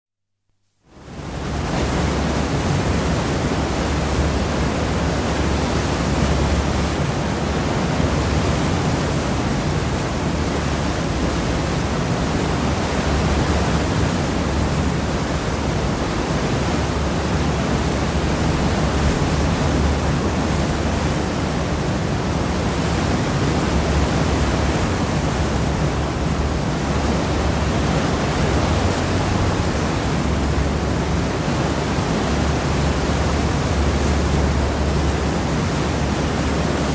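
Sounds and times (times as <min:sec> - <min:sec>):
water rushing in ship wake: 0:00.6 - 0:36.9
heavy low rumble: 0:24.9 - 0:31.8.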